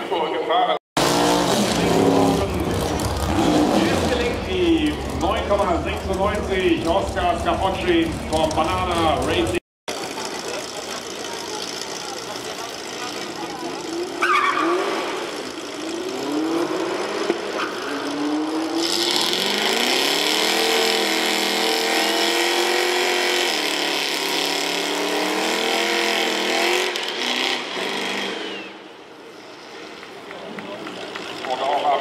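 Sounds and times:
drag car engines revving: 1.0s - 32.0s
tyres screeching: 13.8s - 15.4s, 27.2s - 28.9s.

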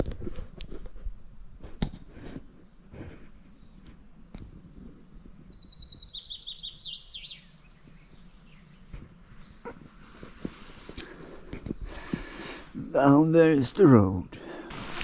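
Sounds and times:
small songbird singing: 2.6s - 13.3s.

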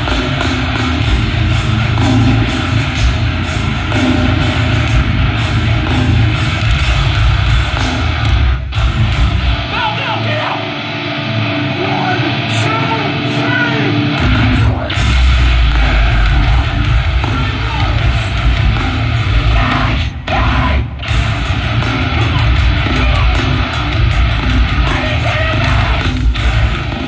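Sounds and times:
metal band playing through pa: 0.0s - 27.0s.

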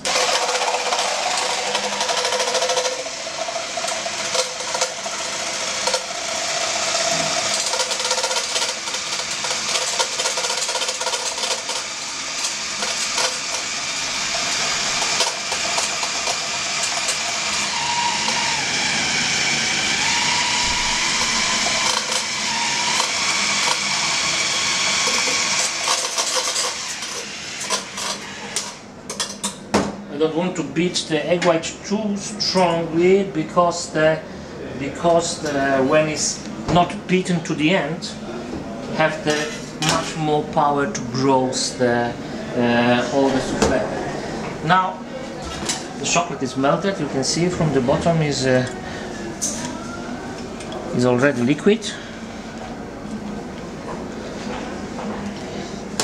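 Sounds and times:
electric hand mixer whirring: 0.0s - 28.9s.

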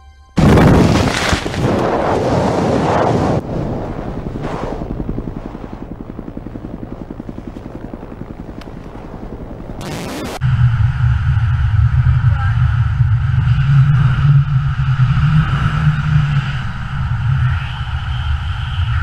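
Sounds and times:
loud rushing noise: 0.4s - 9.2s
helicopter rotor chopping: 0.7s - 10.4s.

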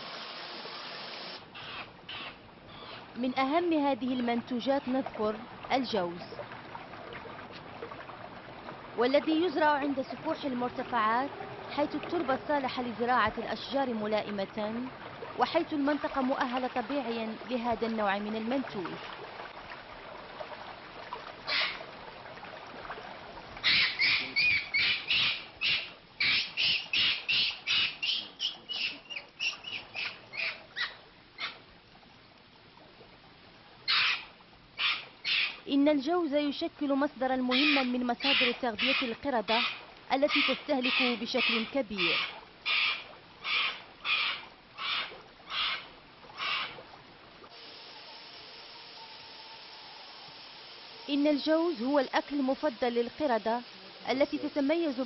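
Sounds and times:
faint steady hiss: 0.0s - 55.0s
high-pitched animal calls: 1.6s - 3.1s, 21.5s - 21.8s, 23.6s - 31.6s, 33.9s - 35.6s, 37.5s - 46.8s
crow cawing: 33.9s - 34.2s, 34.8s - 35.5s, 39.6s - 46.8s.

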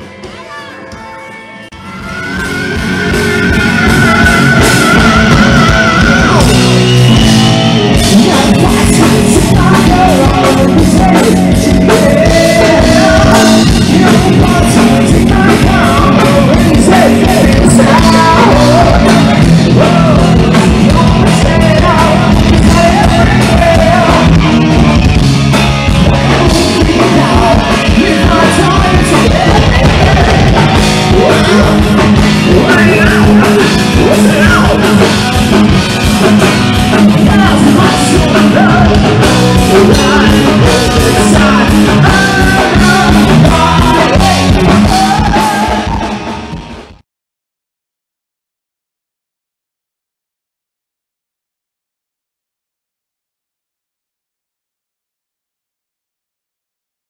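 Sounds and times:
bass guitar: 0.0s - 47.0s
drums: 0.0s - 47.0s
electric guitar: 0.0s - 47.0s
keyboards: 0.0s - 47.0s
person singing: 1.7s - 25.1s, 26.0s - 46.3s.

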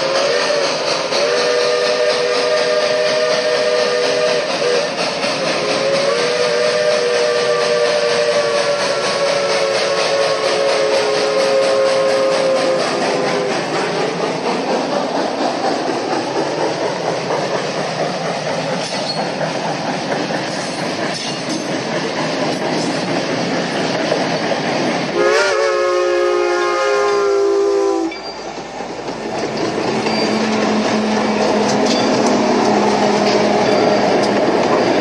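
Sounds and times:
steam whistle blast: 0.0s - 13.2s, 25.1s - 28.3s
train rumbling with rail clatter: 0.0s - 35.0s.

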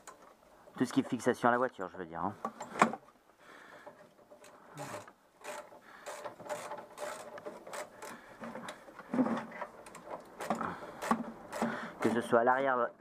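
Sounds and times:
ratchet wrench clicking: 4.9s - 8.2s, 9.9s - 12.1s.

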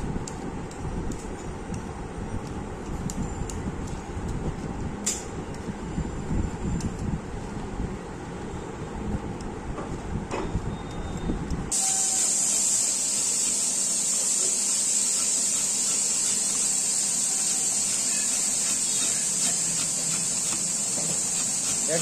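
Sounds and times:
low rumble of wind on microphone: 0.0s - 11.7s
steady hiss: 11.7s - 22.0s.

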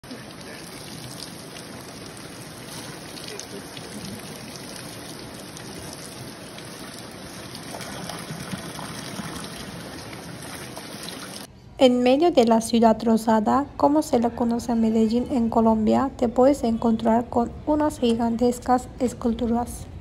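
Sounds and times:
water pouring and splashing: 0.0s - 11.5s.

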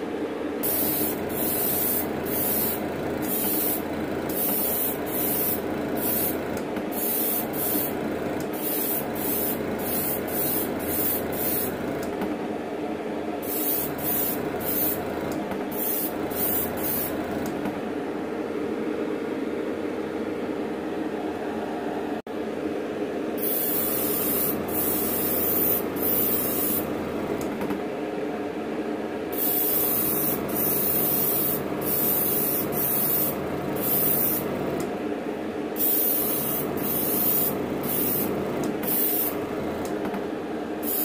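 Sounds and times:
steady hum: 0.0s - 41.0s
airbrush spraying bursts: 0.6s - 12.0s, 13.4s - 17.4s, 23.4s - 27.0s, 29.3s - 34.8s, 35.8s - 39.5s.

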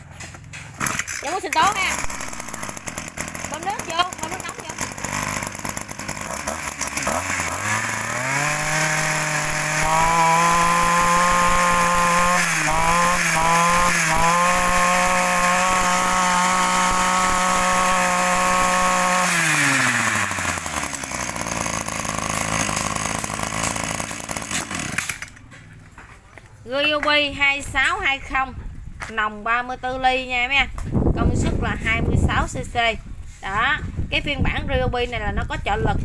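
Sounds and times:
brush cutter engine revving: 0.5s - 25.4s.

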